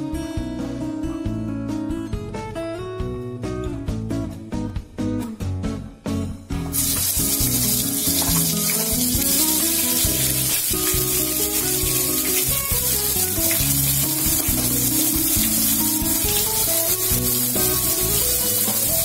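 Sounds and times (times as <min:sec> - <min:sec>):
background guitar music: 0:00.0 - 0:19.0
paste sizzling in hot oil: 0:06.7 - 0:19.0.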